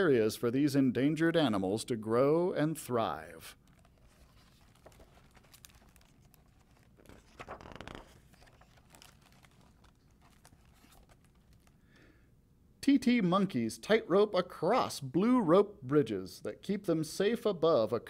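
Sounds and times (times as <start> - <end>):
faint paper handling ticks: 3.6 - 11.8
page turning rustle: 3.6 - 11.8.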